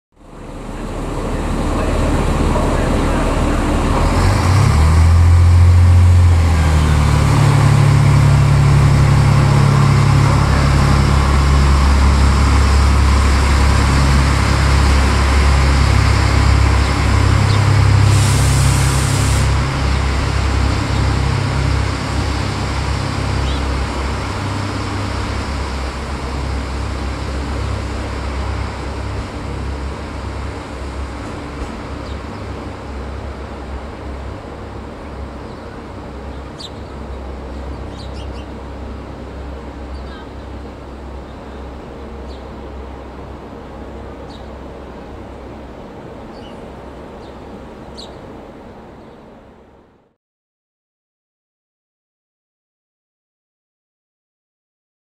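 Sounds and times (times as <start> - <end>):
diesel train engines droning: 0.1 - 50.1.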